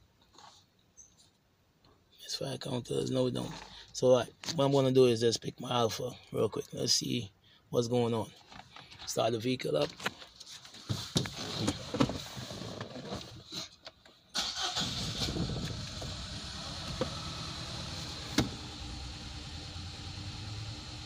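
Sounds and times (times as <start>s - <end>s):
car engine starting and idling rough: 14.4s - 21.0s.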